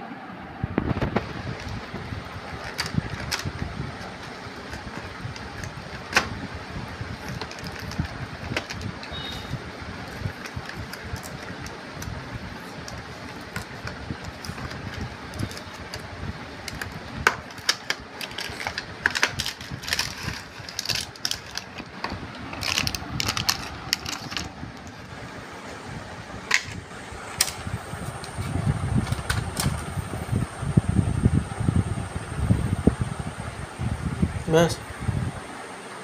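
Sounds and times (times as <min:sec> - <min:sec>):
low background rumble: 0:00.0 - 0:36.0
plastic packaging crinkling: 0:01.2 - 0:06.4, 0:07.1 - 0:09.2, 0:10.0 - 0:25.0.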